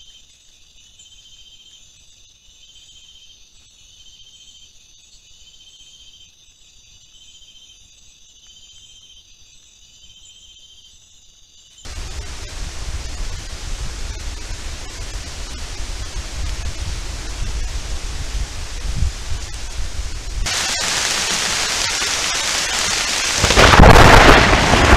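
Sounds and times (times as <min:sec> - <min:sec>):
night insects chirring: 0:00.0 - 0:24.9
pulsed insect call: 0:00.0 - 0:24.9
heavy rain hissing: 0:11.9 - 0:24.9
low rumble: 0:11.9 - 0:24.9.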